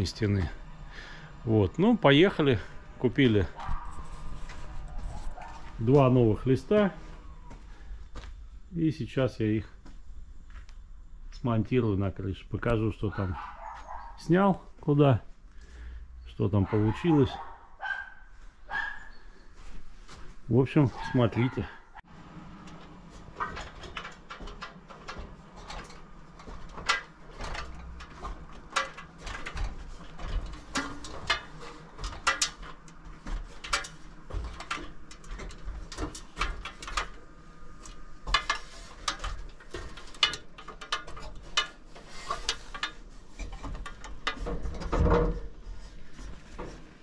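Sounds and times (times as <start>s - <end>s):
clicks and knocks on steel roof: 22.7s - 47.0s.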